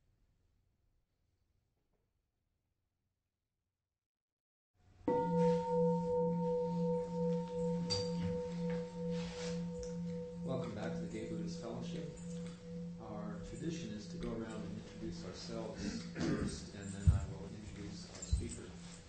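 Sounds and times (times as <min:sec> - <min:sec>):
singing bowl ringing: 0:05.1 - 0:19.0.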